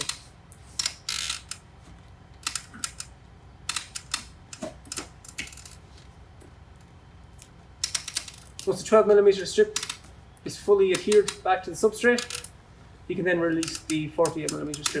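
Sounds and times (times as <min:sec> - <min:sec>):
tape crinkling and crackling: 0:00.0 - 0:08.9.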